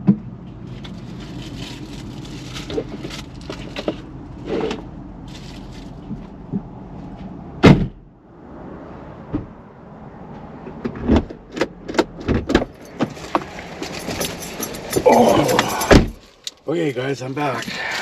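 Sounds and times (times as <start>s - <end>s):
car door opening clicks and knocks: 7.6s - 8.0s, 10.7s - 16.2s
loud sharp thump: 7.6s - 8.0s.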